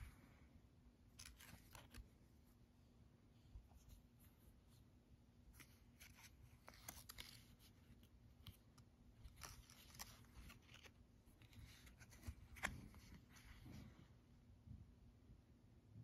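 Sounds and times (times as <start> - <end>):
fingers handling paper tag: 5.6 - 13.5.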